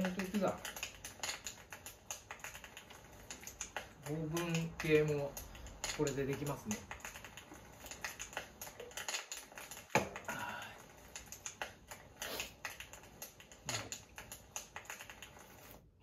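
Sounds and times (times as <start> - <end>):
light clicks and taps: 0.0 - 10.4.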